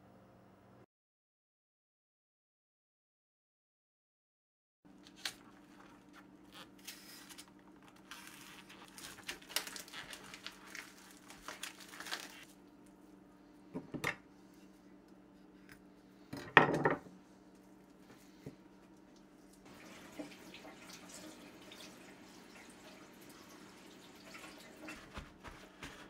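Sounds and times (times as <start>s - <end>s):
plastic packaging crinkling and tearing: 5.0s - 12.6s.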